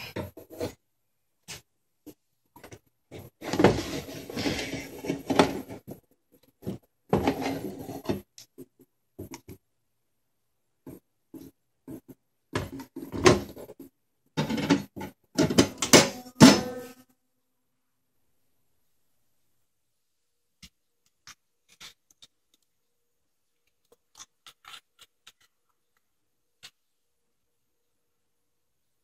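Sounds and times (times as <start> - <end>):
foil pan crinkling and scraping: 3.4 - 6.0.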